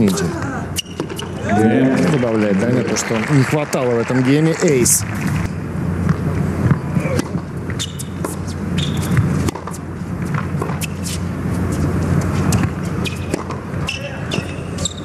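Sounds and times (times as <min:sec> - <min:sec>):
low background hum: 0:00.0 - 0:15.0
ball bouncing on hard court: 0:05.1 - 0:10.9
racket striking ball: 0:05.1 - 0:11.1, 0:12.4 - 0:14.6.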